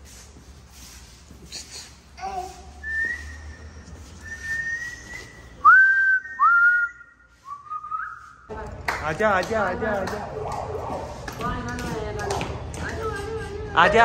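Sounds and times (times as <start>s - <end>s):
person whistling: 2.8s - 8.5s.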